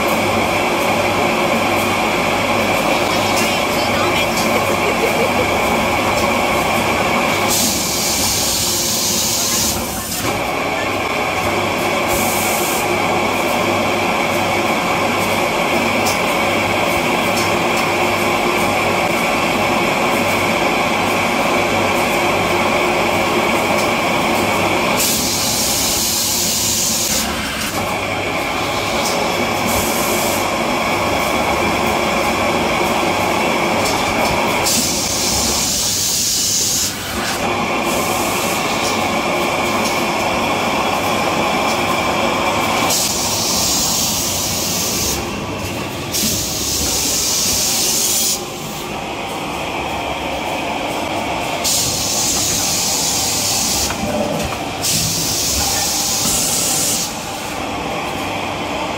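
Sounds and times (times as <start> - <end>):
compressed air hissing: 51.6 - 53.9.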